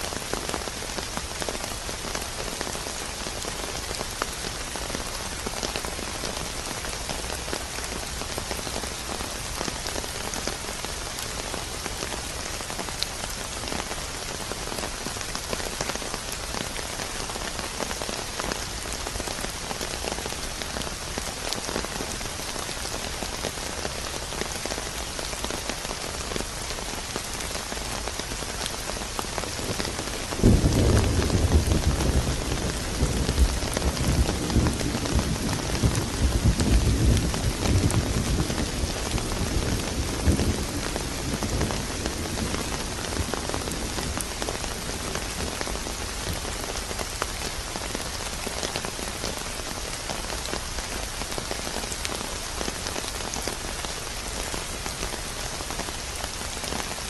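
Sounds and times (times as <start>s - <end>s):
steady rain: 0.0s - 57.0s
thunder clap rumbling: 30.4s - 42.7s.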